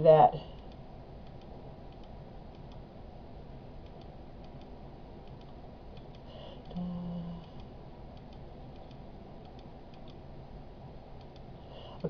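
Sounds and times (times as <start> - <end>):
low steady background hiss: 0.0 - 12.0
computer mouse clicks: 0.6 - 2.8, 3.8 - 6.8, 7.4 - 10.2, 11.2 - 12.0.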